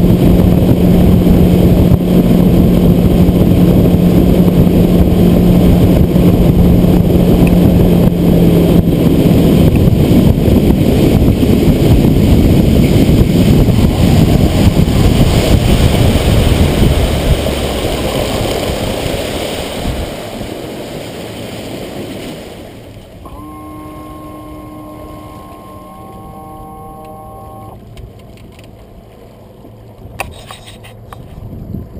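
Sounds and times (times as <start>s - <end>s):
wind and water rushing: 0.0s - 31.9s
steady electronic tones: 13.2s - 16.0s, 23.2s - 27.8s.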